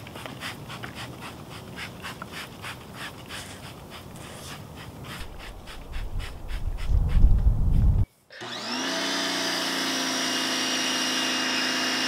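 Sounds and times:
low rumble: 0:05.3 - 0:08.0.

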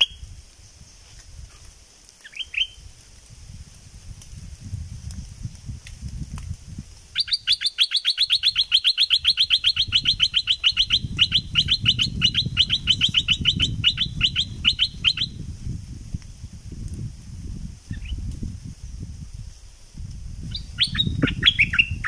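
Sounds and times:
bulbul calling: 0:02.2 - 0:02.8, 0:07.2 - 0:15.4, 0:20.5 - 0:22.0.

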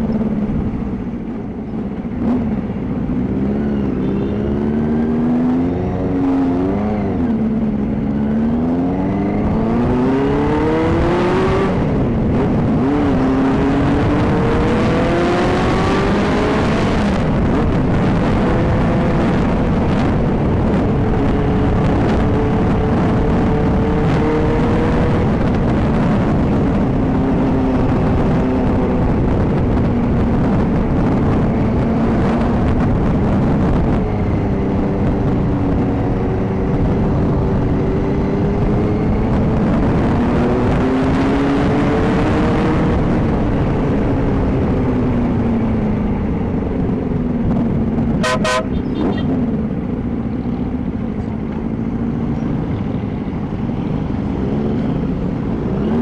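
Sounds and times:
motorcycle engine running: 0:00.0 - 0:10.0
horn toot: 0:48.2 - 0:49.3.

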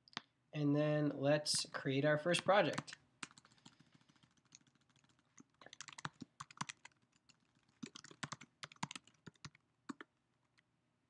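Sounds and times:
keyboard typing: 0:02.7 - 0:10.1.

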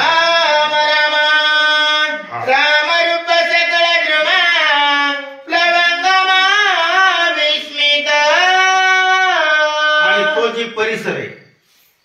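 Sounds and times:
man singing slow devotional verse: 0:00.0 - 0:10.8.

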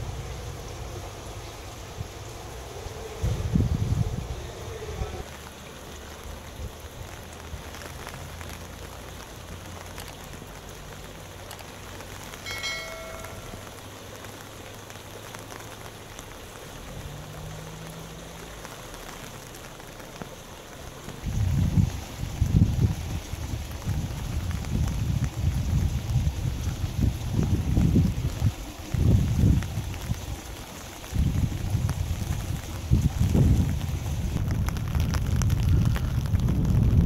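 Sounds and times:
rain patter: 0:00.0 - 0:37.0
running water: 0:00.0 - 0:37.0
notification chime: 0:12.5 - 0:13.6.

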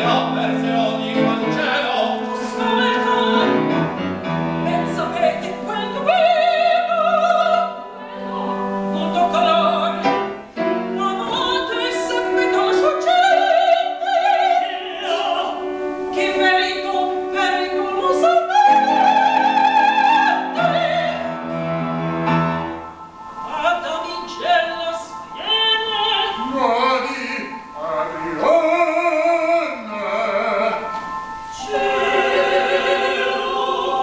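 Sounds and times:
woman singing opera: 0:00.0 - 0:03.8, 0:04.6 - 0:10.2, 0:10.9 - 0:21.5, 0:23.4 - 0:27.5, 0:31.5 - 0:34.0
piano: 0:00.0 - 0:34.0.

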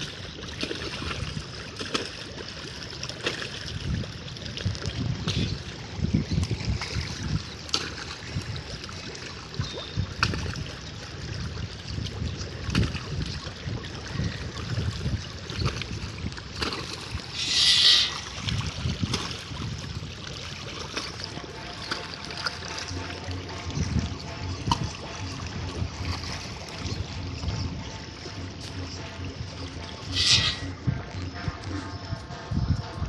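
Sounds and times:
fish splashing at water surface: 0:00.0 - 0:27.2
brief high-pitched sound: 0:17.4 - 0:18.2, 0:30.1 - 0:31.8.

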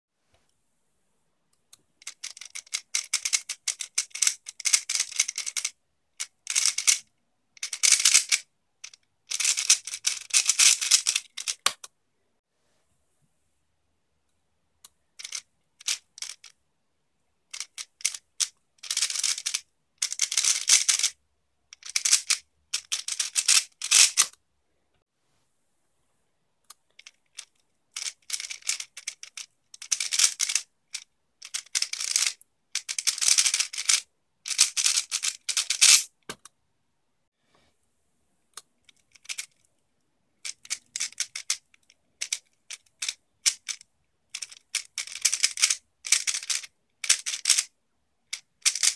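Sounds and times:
plastic puzzle cube clicking: 0:02.0 - 0:07.0, 0:07.6 - 0:11.9, 0:14.8 - 0:16.6, 0:17.5 - 0:21.2, 0:21.8 - 0:24.4, 0:26.7 - 0:36.5, 0:38.6 - 0:39.7, 0:40.4 - 0:47.7, 0:48.3 - 0:48.9.

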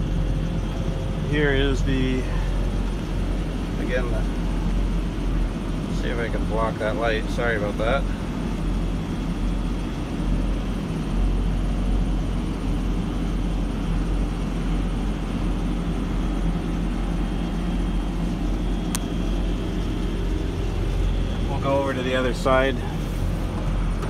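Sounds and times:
truck engine idling: 0:00.0 - 0:24.0
sharp click: 0:18.9 - 0:19.1.

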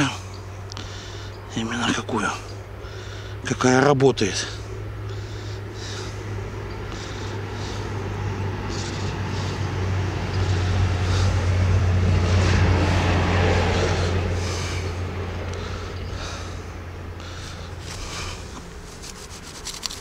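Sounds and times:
vehicle engine passing by: 0:04.4 - 0:19.0.

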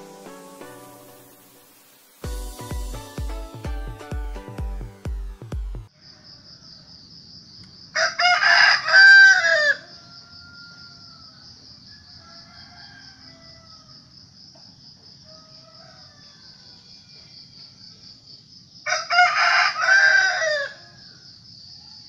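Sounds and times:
rooster crowing: 0:05.9 - 0:07.1, 0:07.9 - 0:14.3, 0:15.0 - 0:17.5, 0:18.8 - 0:21.2.

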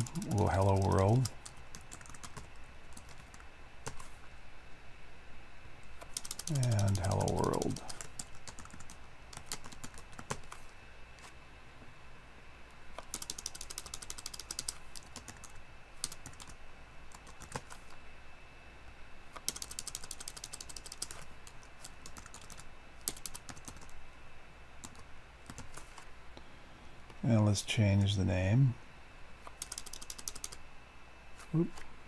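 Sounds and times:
computer keyboard typing: 0:00.0 - 0:04.1, 0:06.0 - 0:10.7, 0:13.0 - 0:17.9, 0:19.4 - 0:24.0, 0:24.8 - 0:26.0, 0:29.5 - 0:30.6.

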